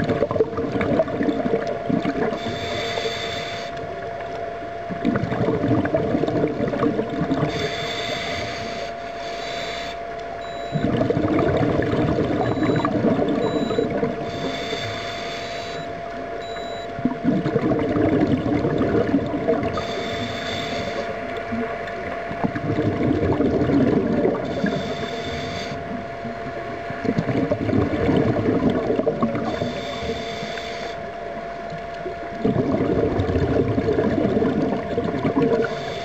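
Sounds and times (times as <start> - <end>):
bubbling exhaust underwater: 0.0 - 36.0
faint hum: 0.0 - 36.0
regulator hiss on inhale: 2.3 - 3.9, 7.5 - 10.1, 14.2 - 16.0, 19.7 - 21.2, 24.4 - 25.9, 29.5 - 31.1, 35.5 - 36.0.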